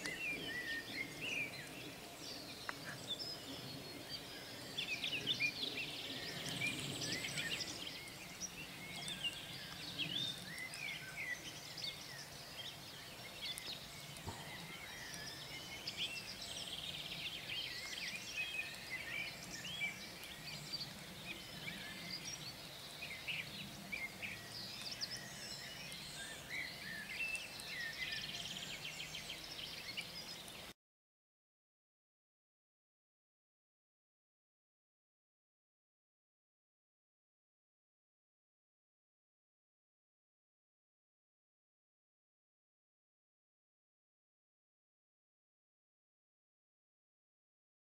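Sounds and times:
songbirds chirping and whistling: 0.0 - 30.7.

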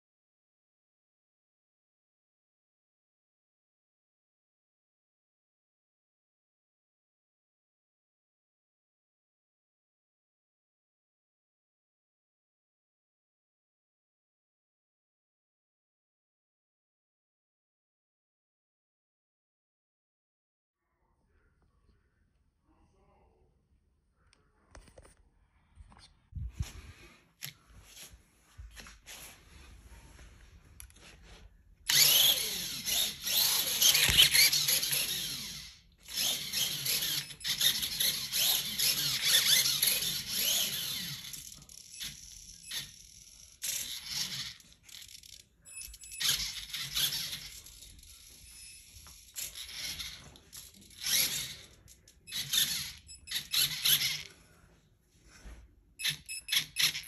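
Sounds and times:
small electric motor whining: 31.9 - 54.4.

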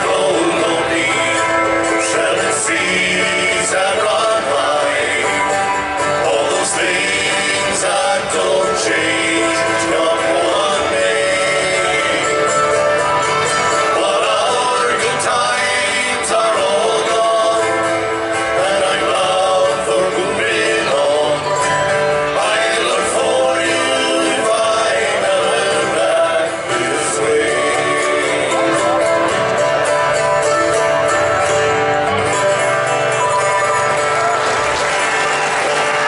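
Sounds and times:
man singing: 0.0 - 13.0, 13.7 - 21.7, 22.3 - 29.3
mandolin: 0.0 - 36.0
strummed acoustic guitar: 0.0 - 36.0.

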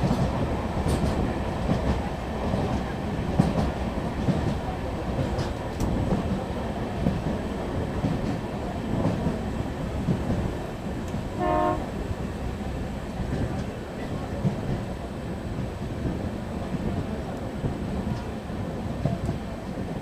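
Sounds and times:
train rumbling on track: 0.0 - 20.0
train horn blast: 11.4 - 12.0.

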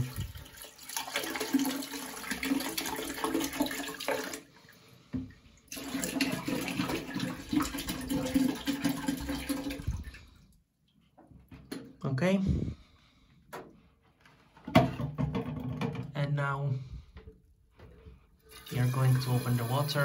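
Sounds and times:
liquid pouring into toilet cistern: 0.0 - 10.6, 18.4 - 20.0.

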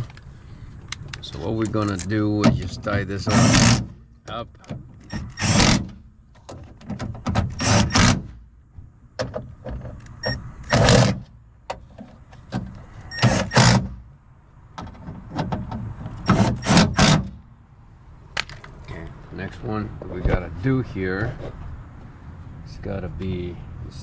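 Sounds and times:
impact driver bursts: 5.1 - 5.9, 7.5 - 8.3, 13.1 - 14.0, 16.3 - 17.4.

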